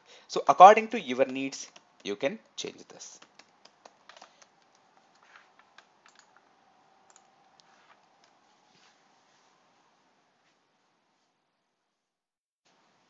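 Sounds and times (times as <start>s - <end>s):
faint keyboard typing: 0.6s - 8.6s.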